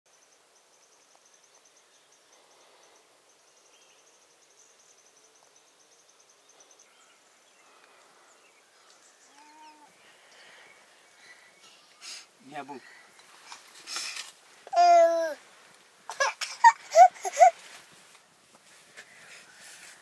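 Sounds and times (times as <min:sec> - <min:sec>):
faint chirps: 0:00.1 - 0:13.1.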